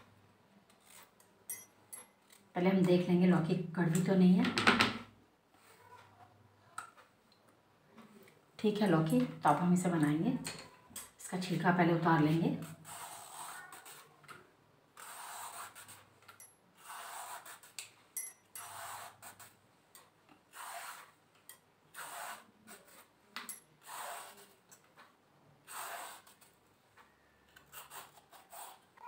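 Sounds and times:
peeler scraping gourd skin: 0.7s - 1.2s, 12.6s - 14.3s, 18.6s - 19.6s, 20.5s - 21.2s, 21.9s - 23.1s, 27.5s - 29.0s.

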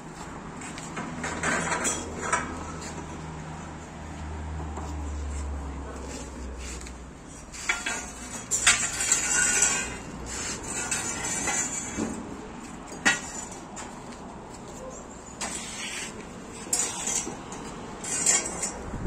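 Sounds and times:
metal chair frames clanking: 1.0s - 2.7s, 7.5s - 12.3s, 14.7s - 19.0s.

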